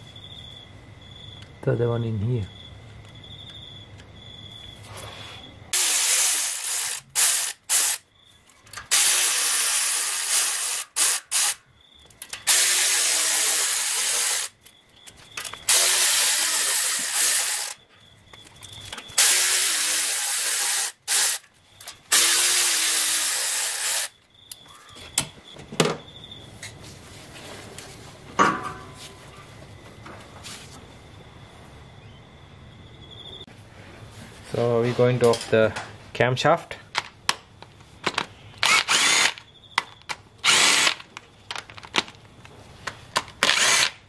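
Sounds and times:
power tool spinning bolts: 0:05.8 - 0:08.0, 0:08.7 - 0:11.6, 0:12.2 - 0:14.6, 0:15.4 - 0:17.8, 0:19.1 - 0:24.2, 0:38.6 - 0:39.4, 0:40.4 - 0:41.1, 0:43.4 - 0:44.0.

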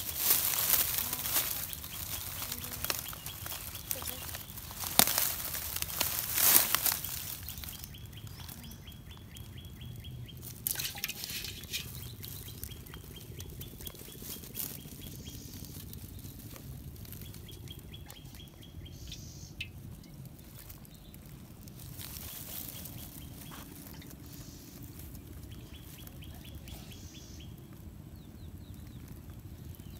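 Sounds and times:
rustling: 0:00.0 - 0:08.9, 0:10.4 - 0:18.6, 0:20.1 - 0:26.7
low background hum: 0:00.0 - 0:29.9.

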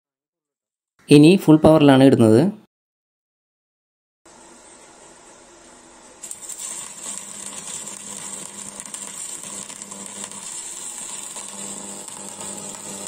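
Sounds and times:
welding arc crackling: 0:04.3 - 0:13.0.

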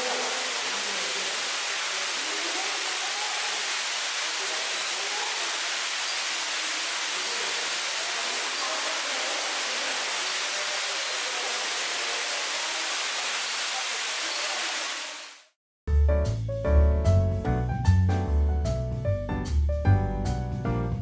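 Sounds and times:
faint indistinct voices: 0:06.8 - 0:14.7.

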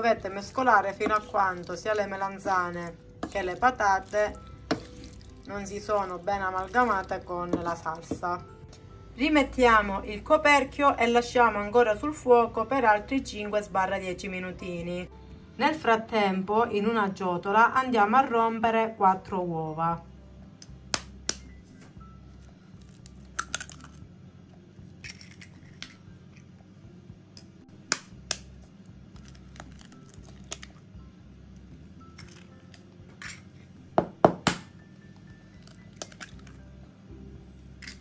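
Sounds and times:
eggs cracking against plastic bowl: 0:22.8 - 0:24.0, 0:29.2 - 0:30.8, 0:35.6 - 0:36.6.

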